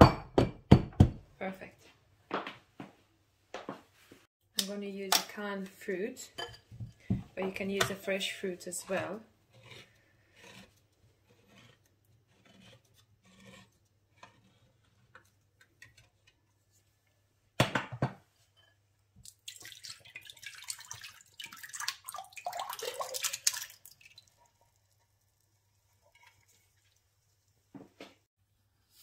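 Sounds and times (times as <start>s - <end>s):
fruit and syrup pouring into bowl: 19.2s - 24.8s.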